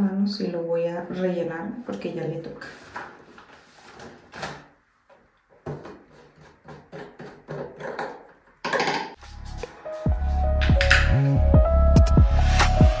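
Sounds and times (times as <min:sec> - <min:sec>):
bottles knocking and clicking: 0:06.6 - 0:09.2.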